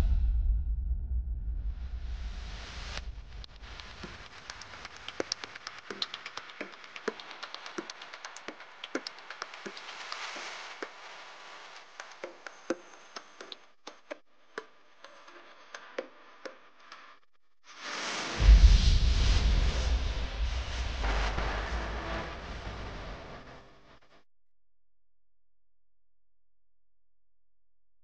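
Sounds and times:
sharp clicks and taps: 3.6 - 11.0, 11.8 - 17.0.

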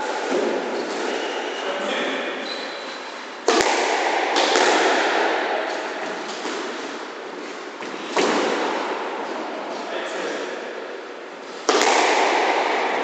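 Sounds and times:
squash ball hitting racket and walls: 0.0 - 13.0.

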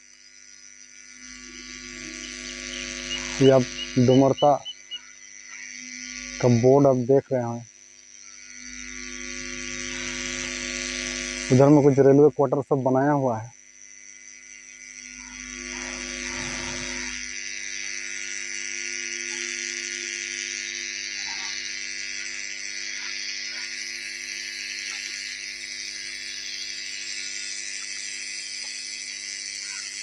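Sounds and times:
faint chirps: 0.0 - 8.9, 21.1 - 30.0
high-pitched buzzing drone: 0.0 - 30.0.

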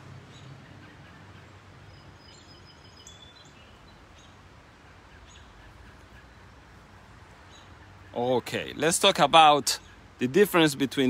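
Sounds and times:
birds chirping: 0.0 - 11.0
low outdoor hum: 0.0 - 11.0
thin whistled call: 0.8 - 4.0.

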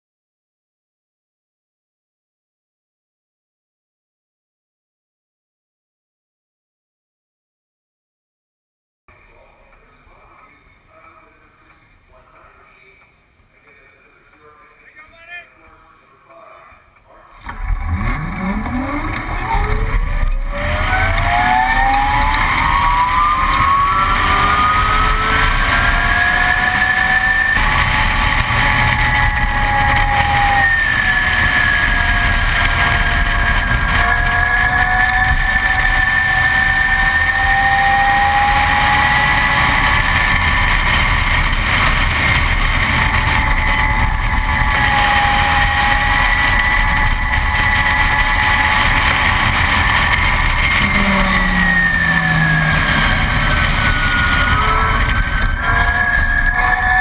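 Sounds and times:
electric motor whine: 17.4 - 57.0
wind and road rush: 17.4 - 57.0.

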